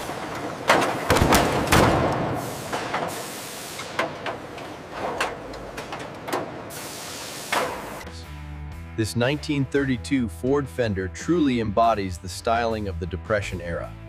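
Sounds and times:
stamping press knocks and clanks: 0:00.0 - 0:03.2
steady machinery hiss: 0:02.1 - 0:08.2.

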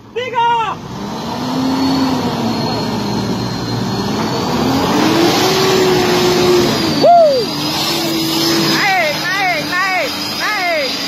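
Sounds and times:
truck engines under heavy load: 0:00.0 - 0:11.0.

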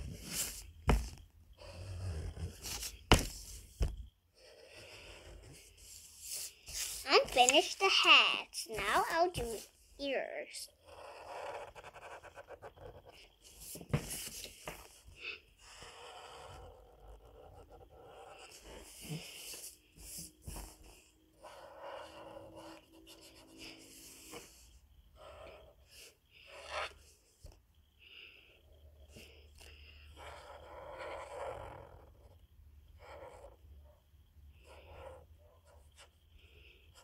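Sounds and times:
marker rubbing on paper: 0:00.1 - 0:00.7, 0:04.5 - 0:08.1, 0:08.7 - 0:09.7, 0:10.8 - 0:14.9, 0:15.7 - 0:27.1.

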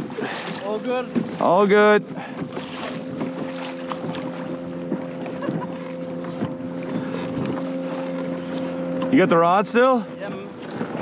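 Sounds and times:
water splashing around kayak: 0:00.0 - 0:11.0
wind on microphone: 0:02.1 - 0:08.9.

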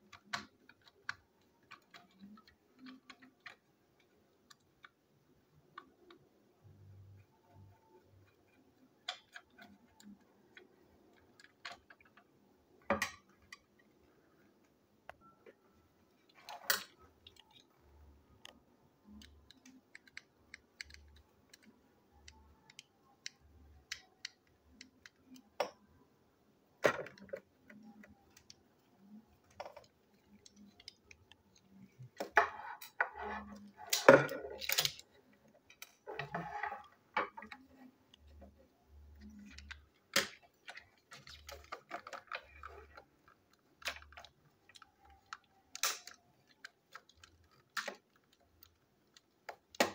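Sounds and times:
plastic toy clicks and rattles: 0:26.8 - 0:38.3, 0:39.1 - 0:49.9.

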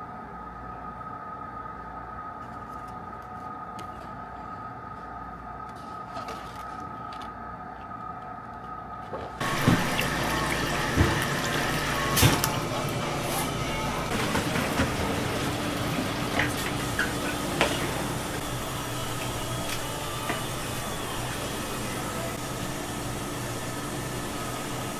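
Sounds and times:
tap water running into sink: 0:09.4 - 0:18.5.

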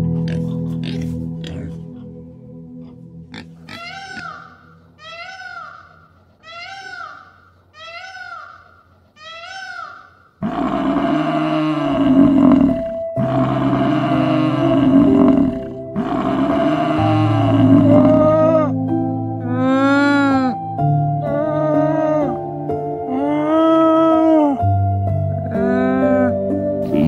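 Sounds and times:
music-like tones: 0:00.0 - 0:05.2, 0:11.4 - 0:27.0
buffalo bellowing: 0:03.3 - 0:07.1, 0:10.4 - 0:18.8
peafowl calls: 0:03.7 - 0:10.2.

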